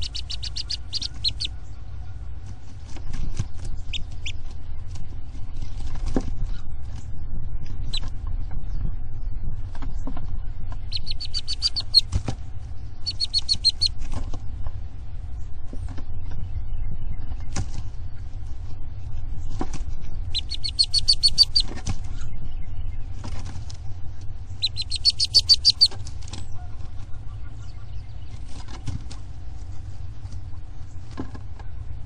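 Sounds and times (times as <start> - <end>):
bird high fast trill: 0.0 - 1.5, 10.9 - 12.1, 13.0 - 14.0, 20.4 - 21.7, 24.6 - 26.0
low steady rumble: 0.0 - 32.0.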